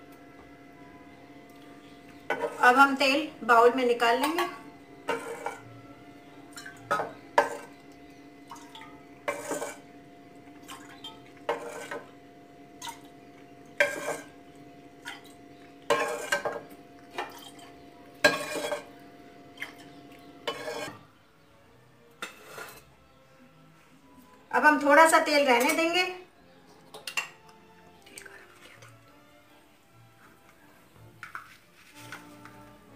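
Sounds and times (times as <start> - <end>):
ladle scraping frying pan: 2.3 - 2.8, 5.1 - 5.7, 9.3 - 9.9, 11.0 - 12.2, 13.8 - 14.4, 15.8 - 19.0, 20.4 - 21.1, 22.2 - 22.9, 31.2 - 32.7.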